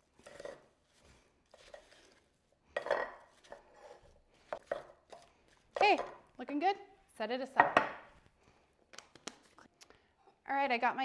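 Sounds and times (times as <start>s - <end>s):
wooden spoon scraping ceramic bowl: 0.0s - 6.2s.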